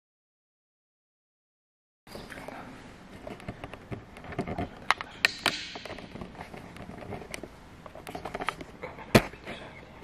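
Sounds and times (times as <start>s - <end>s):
sharp clicks and knocks: 3.2s - 9.3s.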